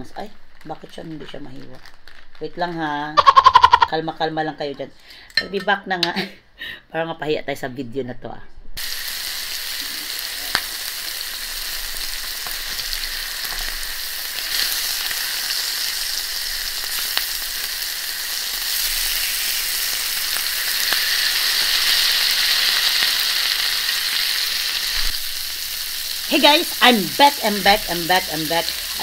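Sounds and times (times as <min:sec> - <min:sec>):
steak sizzling on griddle: 0:08.8 - 0:29.0.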